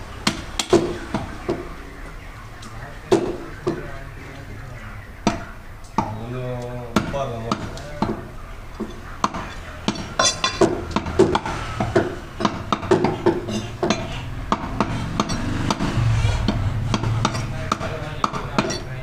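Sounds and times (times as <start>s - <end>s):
cleaver chopping on wooden block: 7.0s - 18.8s.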